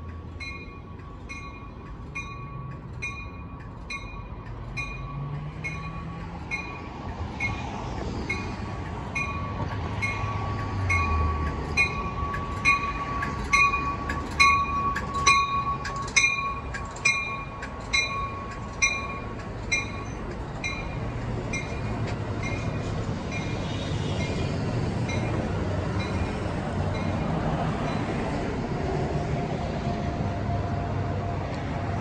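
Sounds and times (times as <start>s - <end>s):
train coaches rumbling past: 0.0s - 32.0s.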